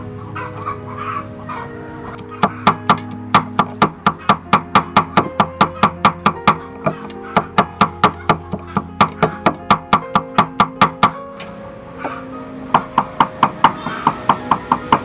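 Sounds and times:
plucked guitar music: 0.0s - 14.5s
cleavers chopping on wooden block: 2.4s - 11.2s, 12.8s - 15.0s.

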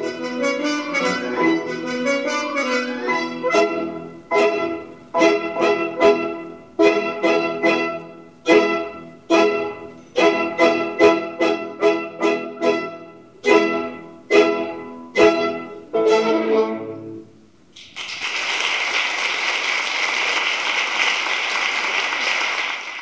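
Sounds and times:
orchestra playing accented chords: 0.0s - 17.6s
applause: 17.8s - 23.0s.

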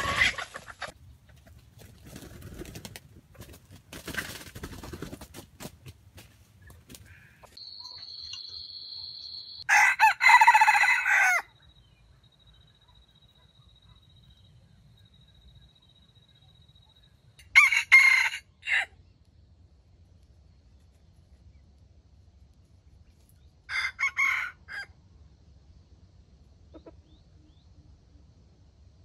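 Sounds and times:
faint high whine: 7.6s - 9.7s
rooster crowing: 9.6s - 11.6s, 17.4s - 19.0s, 23.7s - 25.0s.

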